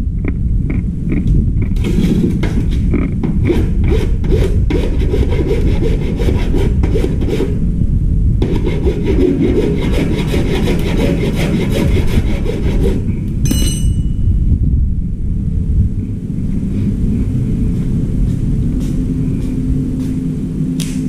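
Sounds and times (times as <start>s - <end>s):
low rumble: 7.6s - 8.4s, 13.4s - 21.0s.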